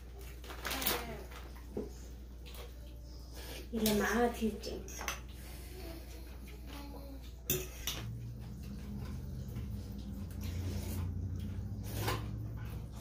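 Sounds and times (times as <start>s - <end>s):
cutlery clinking on ceramic bowls: 7.4s - 9.0s
noodles slurped: 8.0s - 13.0s.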